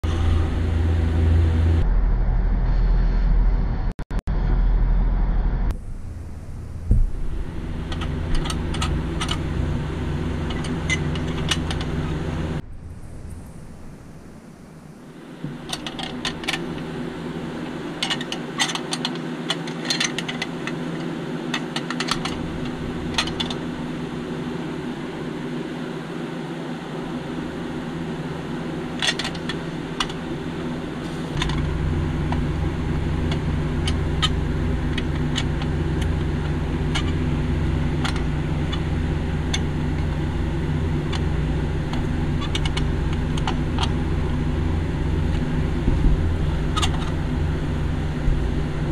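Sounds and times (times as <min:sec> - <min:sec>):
steady low hum: 0:00.0 - 0:48.9.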